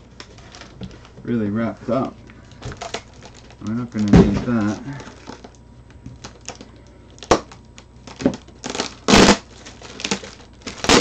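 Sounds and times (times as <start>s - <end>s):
plastic packaging crinkling: 0.0s - 1.2s, 2.0s - 11.0s
tape ripping off: 7.2s - 11.0s.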